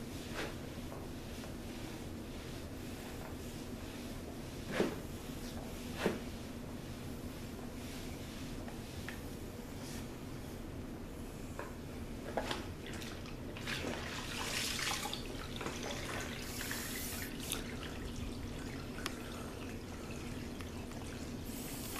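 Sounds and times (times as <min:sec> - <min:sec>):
mop splashing in bucket: 0:12.5 - 0:19.8.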